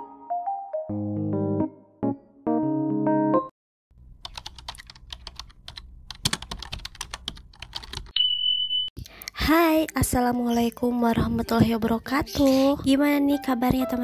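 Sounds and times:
computer keyboard typing clicks: 4.2 - 8.1
steady high beep: 8.2 - 8.9.

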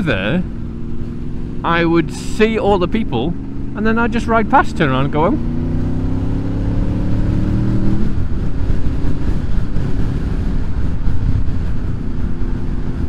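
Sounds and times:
motorcycle engine running: 0.0 - 13.0
wind noise on microphone: 5.5 - 13.0.

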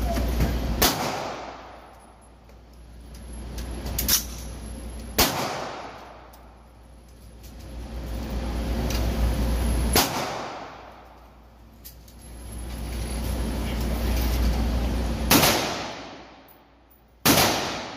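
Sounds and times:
pistol shots indoors: 0.8 - 2.0, 5.2 - 6.5, 9.9 - 11.1, 15.3 - 16.6, 17.2 - 17.9.

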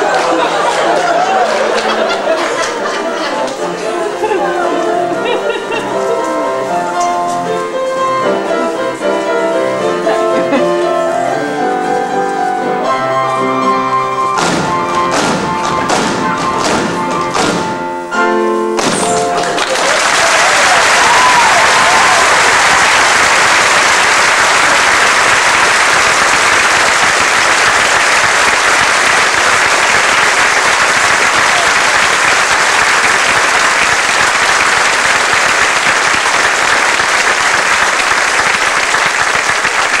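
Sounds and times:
audience applauding: 0.0 - 6.7, 19.1 - 40.0.

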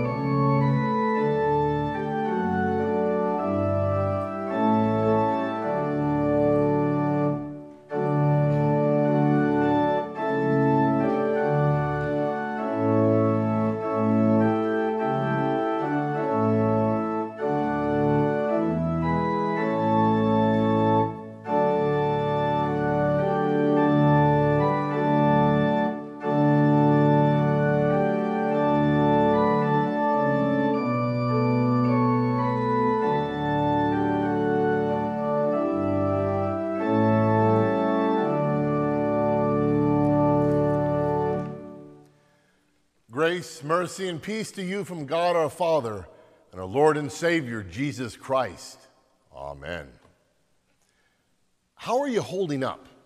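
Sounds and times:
church organ chords: 0.0 - 52.9.

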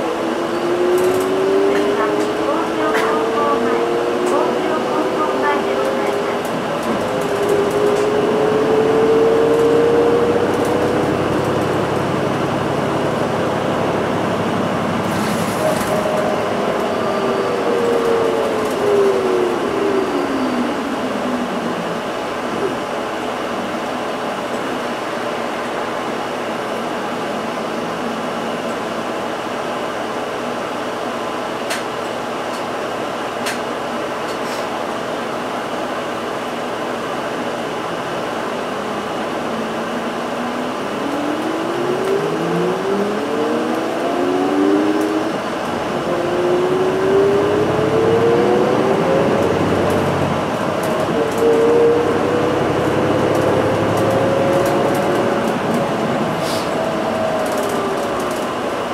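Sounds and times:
bus cabin hum: 0.0 - 58.9
bus engine whining accelerating: 0.0 - 58.9.

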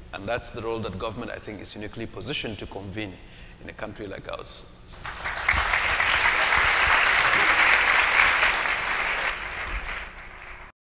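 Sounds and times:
audience applauding: 5.0 - 10.7.

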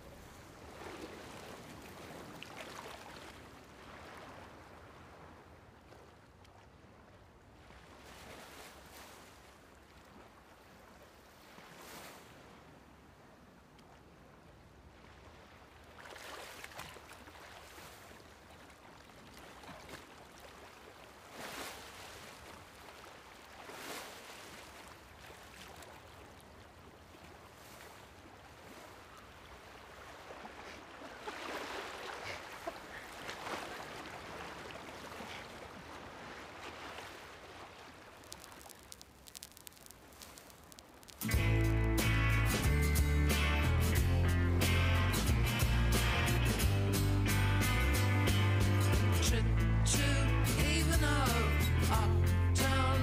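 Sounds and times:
surf washing over shingle: 36.6 - 42.6.

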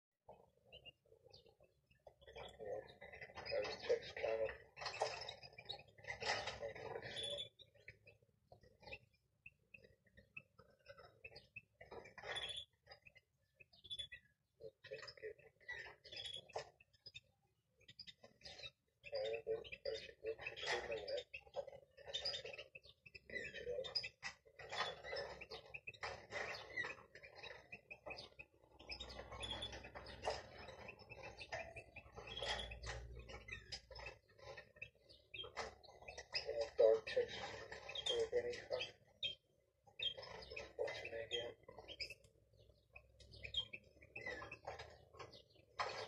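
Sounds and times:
finches chirping: 0.4 - 46.0
chicks calling: 17.9 - 46.0.

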